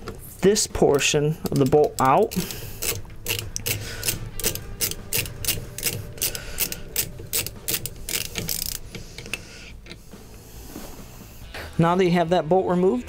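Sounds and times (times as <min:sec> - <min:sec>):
ratchet wrench clicking: 0:01.4 - 0:10.1.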